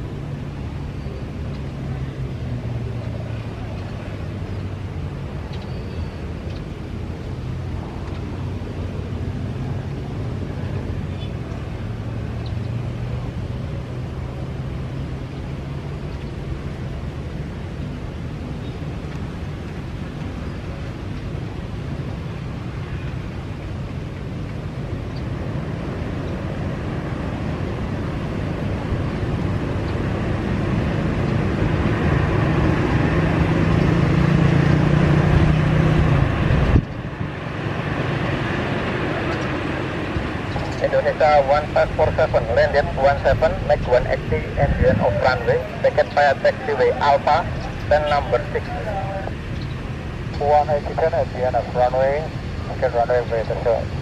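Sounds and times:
distant jet engines rumbling: 0:00.0 - 0:54.0
wind on microphone: 0:15.9 - 0:51.3.

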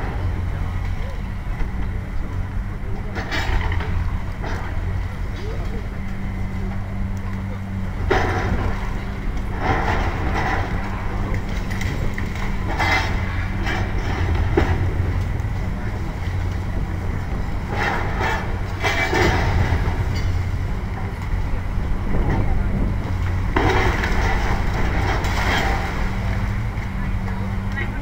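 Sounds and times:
excavator engine running: 0:00.0 - 0:28.0
concrete debris crashing: 0:17.6 - 0:21.3, 0:23.2 - 0:27.6.

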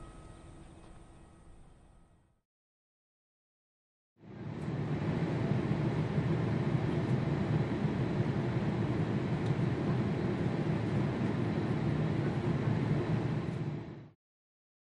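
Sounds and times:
jet airliner rumble: 0:04.2 - 0:14.2.

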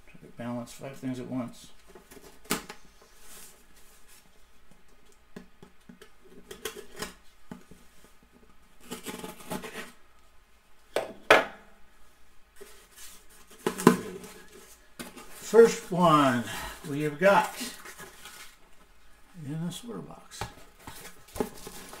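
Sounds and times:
cardboard boxes rustling and scraping: 0:01.9 - 0:04.5, 0:08.8 - 0:10.0, 0:12.6 - 0:18.9, 0:20.4 - 0:22.0.

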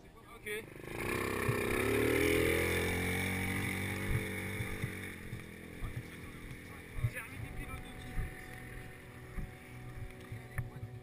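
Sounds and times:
buggy engine passing by: 0:00.0 - 0:11.0.

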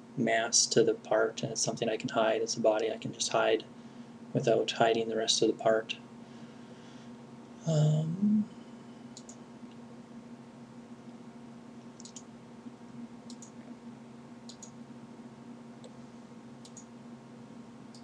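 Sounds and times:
steady low hum: 0:00.0 - 0:18.0
computer mouse clicks: 0:09.2 - 0:09.4, 0:12.0 - 0:12.3, 0:13.3 - 0:13.6, 0:14.5 - 0:14.8, 0:16.6 - 0:16.9.

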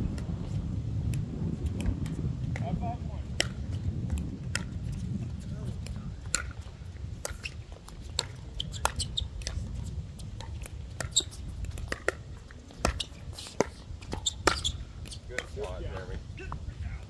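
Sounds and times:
wind rumble on microphone: 0:00.0 - 0:17.0
ball bouncing on hard court: 0:10.4 - 0:12.2, 0:12.8 - 0:15.6
paddles hitting plastic ball: 0:10.4 - 0:16.1.

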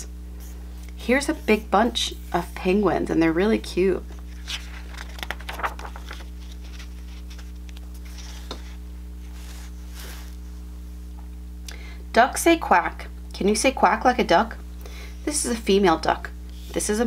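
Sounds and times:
steady low hum: 0:00.0 - 0:17.0
paper pages rustling: 0:04.1 - 0:10.4.

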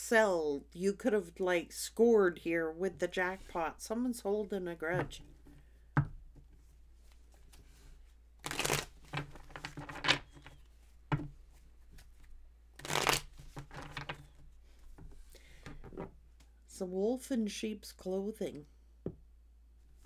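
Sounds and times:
cards shuffled by hand: 0:08.4 - 0:10.6, 0:11.5 - 0:14.4.

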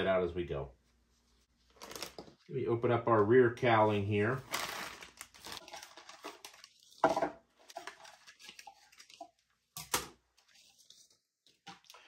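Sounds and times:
packing material rustling: 0:01.7 - 0:02.5, 0:04.3 - 0:09.4.

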